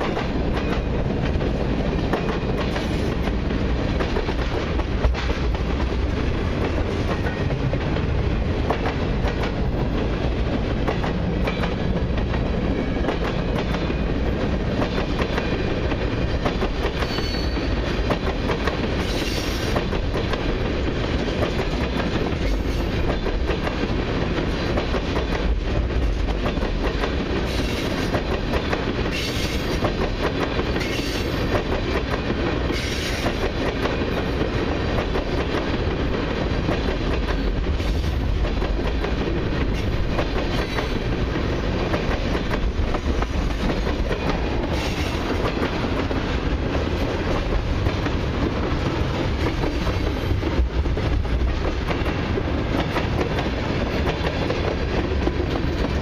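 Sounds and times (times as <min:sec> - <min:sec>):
train wheels clickety-clack: 0:00.0 - 0:56.0
high-pitched wheel squeals: 0:17.0 - 0:17.7.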